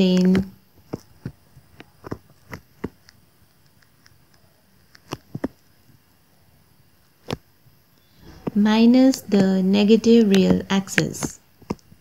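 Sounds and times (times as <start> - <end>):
stylus tapping on tablet screen: 5.0 - 5.7, 8.2 - 12.0.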